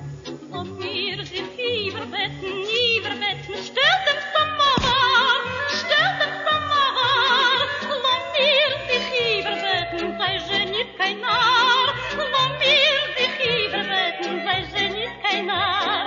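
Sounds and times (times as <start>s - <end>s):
person singing with vibrato: 0.2s - 16.0s.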